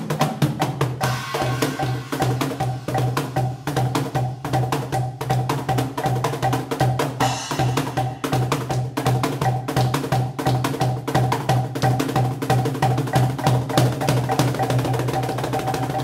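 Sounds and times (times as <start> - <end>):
cajon slaps and bass strokes: 0.0 - 16.0
metal shimmer: 1.0 - 4.3, 7.2 - 8.6.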